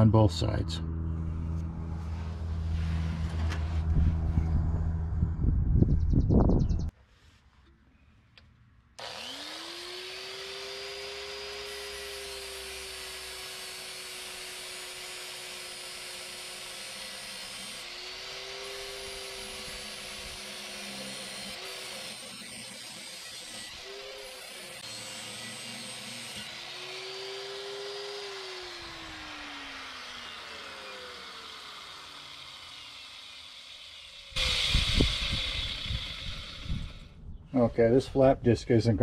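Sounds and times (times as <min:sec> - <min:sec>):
angle grinder on steel: 0:09.0 - 0:38.1.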